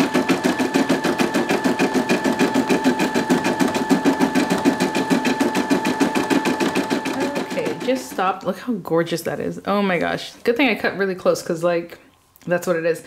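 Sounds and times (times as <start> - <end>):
embroidery machine stitching: 0.0 - 8.4.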